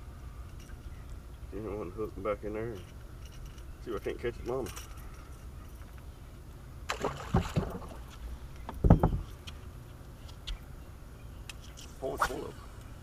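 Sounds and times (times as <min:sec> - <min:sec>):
fish splashing into water: 0:06.9 - 0:08.0
heavy thump on boat deck: 0:07.1 - 0:08.0, 0:08.7 - 0:09.3.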